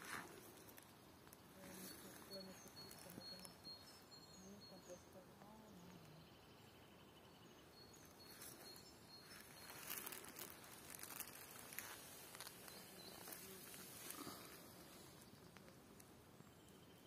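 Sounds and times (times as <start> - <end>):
dry leaves rustling: 0.0 - 3.5, 8.2 - 16.0.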